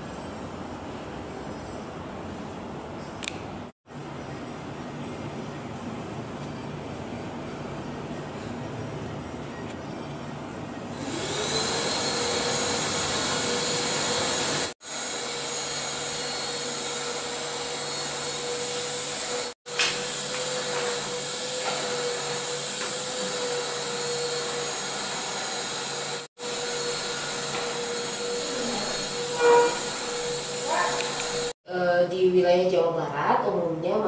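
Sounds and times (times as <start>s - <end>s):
mechanical hum and hiss: 0.0s - 11.4s.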